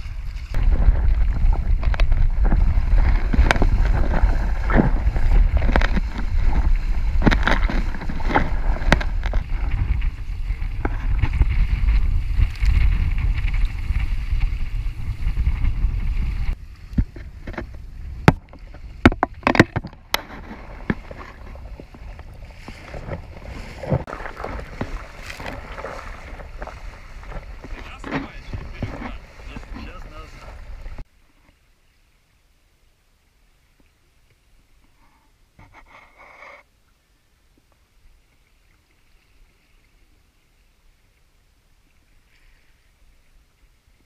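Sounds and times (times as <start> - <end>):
wind buffeting microphone: 0.0 - 31.0
water rushing along a hull: 0.0 - 36.7.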